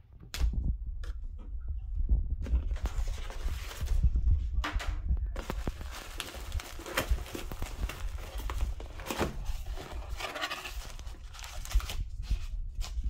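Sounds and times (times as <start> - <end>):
packaging rustling and crinkling: 2.6 - 4.1, 5.4 - 13.0.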